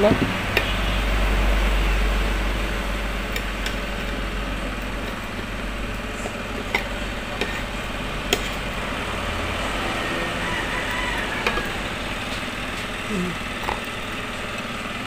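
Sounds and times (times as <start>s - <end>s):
background hum: 0.0s - 15.0s
spatula stirring in plastic bowl: 6.1s - 8.7s.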